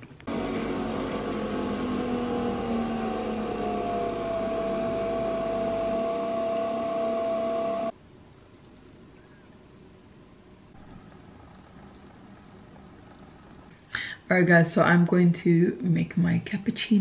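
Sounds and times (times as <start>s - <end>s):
coffee machine whirring: 0.2s - 7.9s, 10.8s - 13.8s.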